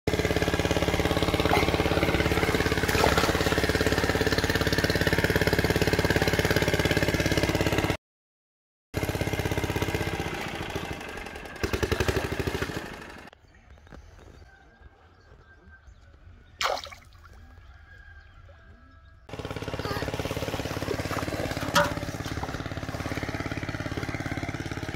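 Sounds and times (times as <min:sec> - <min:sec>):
small engine running: 0:00.1 - 0:08.0, 0:09.0 - 0:13.4, 0:19.2 - 0:24.9.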